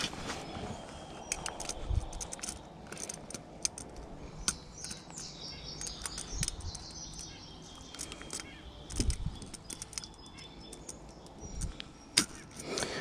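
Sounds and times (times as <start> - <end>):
bird singing faintly: 0.0 - 13.0
pliers clicking on metal hooks: 1.2 - 13.0.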